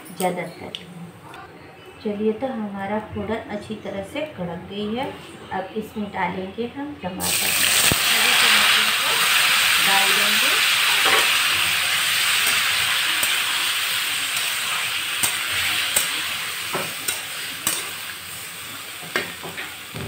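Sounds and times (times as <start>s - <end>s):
tomatoes sizzling in oil: 7.2s - 20.0s
metal spatula clicking on pan: 15.2s - 16.2s, 17.0s - 17.9s.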